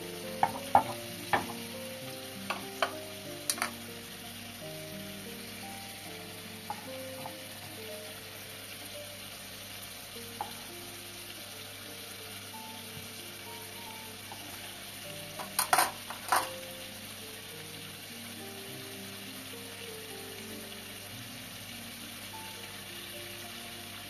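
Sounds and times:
soft background music: 0:00.0 - 0:24.0
steady hiss: 0:00.0 - 0:24.0.

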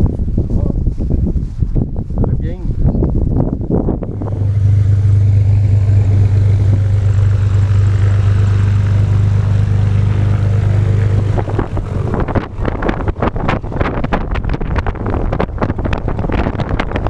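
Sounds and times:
wind buffeting microphone: 0:00.0 - 0:17.0
light plane engine idling: 0:03.8 - 0:17.0.

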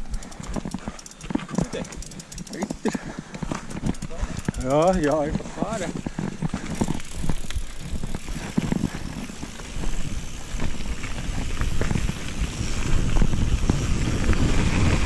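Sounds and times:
bike rattling over bumps: 0:00.0 - 0:15.0
bike tyres on gravel: 0:00.0 - 0:15.0
wind rumble on microphone: 0:03.6 - 0:15.0.

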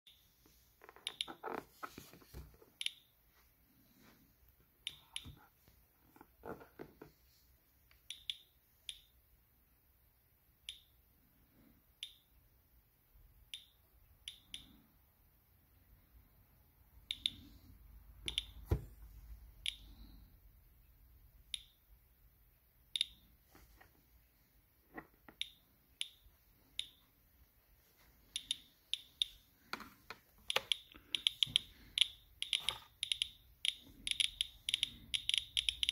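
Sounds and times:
geiger counter clicking: 0:07.9 - 0:09.2, 0:10.6 - 0:11.0, 0:12.0 - 0:12.4, 0:13.4 - 0:14.8, 0:17.1 - 0:17.6, 0:18.2 - 0:18.6, 0:21.4 - 0:21.9, 0:22.9 - 0:23.3, 0:25.2 - 0:27.0, 0:30.1 - 0:35.9.

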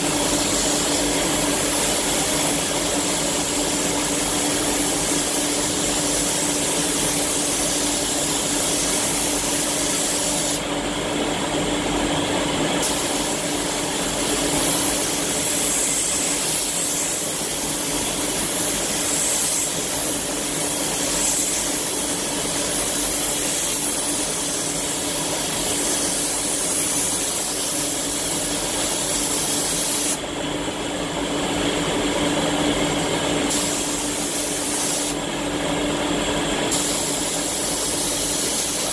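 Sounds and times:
spray gun hissing: 0:00.0 - 0:10.7, 0:12.8 - 0:30.2, 0:33.5 - 0:35.2, 0:36.7 - 0:38.9.

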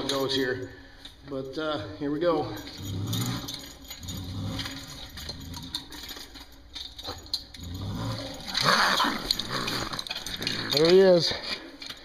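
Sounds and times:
chain and metal rattling: 0:00.0 - 0:12.0
raccoon growling: 0:02.8 - 0:05.9, 0:07.6 - 0:11.1.

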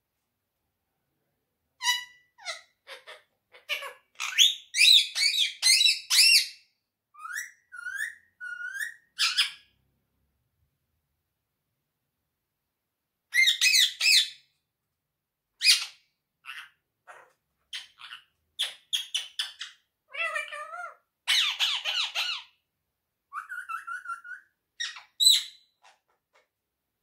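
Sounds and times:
parakeet squawking and chirping: 0:01.8 - 0:06.6, 0:07.2 - 0:09.7, 0:13.3 - 0:14.5, 0:15.6 - 0:22.6, 0:23.3 - 0:26.4.

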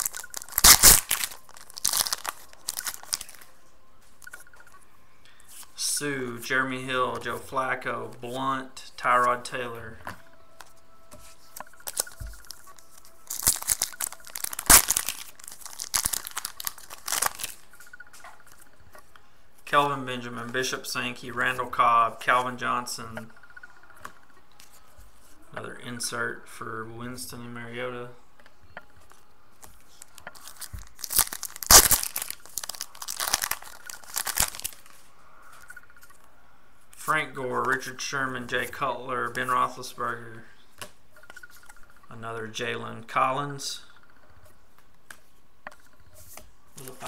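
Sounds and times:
foil wrapper crinkling: 0:00.0 - 0:03.5, 0:11.6 - 0:17.6, 0:29.9 - 0:35.0.

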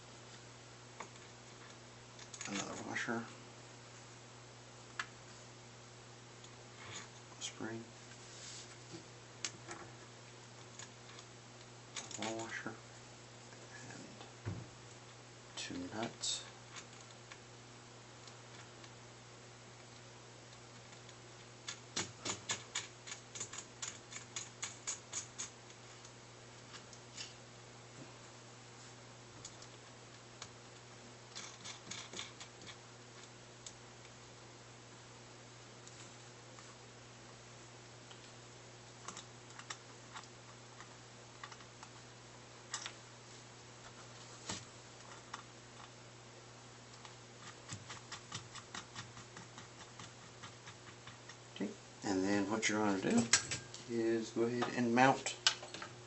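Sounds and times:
small metal parts clicking: 0:21.7 - 0:25.6, 0:31.3 - 0:33.3.

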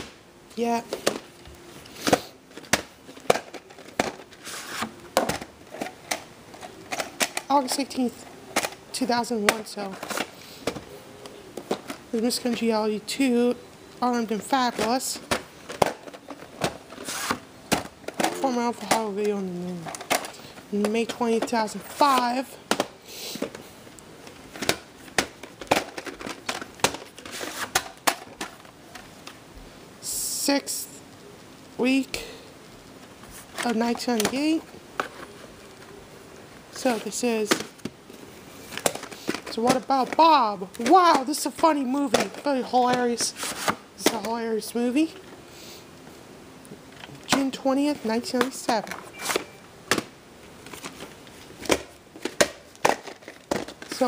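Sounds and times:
sleeves rustling: 0:00.6 - 0:12.8, 0:14.1 - 0:29.2
cardboard and plastic scraping: 0:00.9 - 0:08.8, 0:09.4 - 0:12.7, 0:14.6 - 0:19.0, 0:24.3 - 0:29.1, 0:33.1 - 0:36.0, 0:36.7 - 0:44.3, 0:47.0 - 0:54.0.

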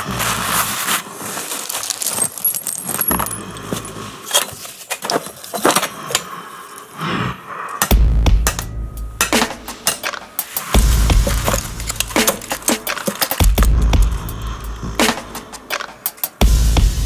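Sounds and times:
metal tools clinking: 0:01.6 - 0:06.2, 0:08.5 - 0:13.6.

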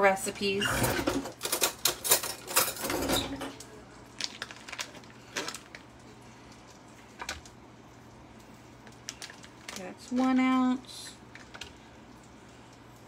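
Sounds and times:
wrapper clicking and crinkling: 0:03.6 - 0:10.6, 0:11.3 - 0:12.4.

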